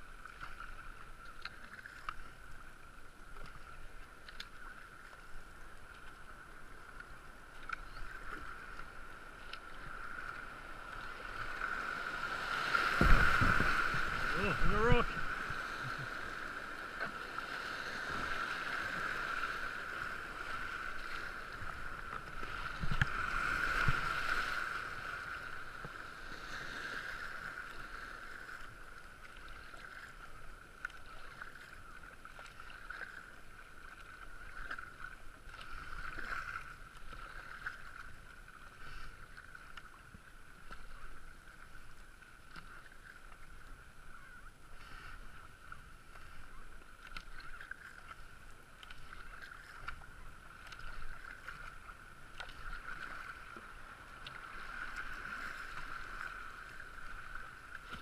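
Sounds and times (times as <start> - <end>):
paddle strokes and splashing: 0.0 - 58.0
whitewater rushing: 11.3 - 20.7.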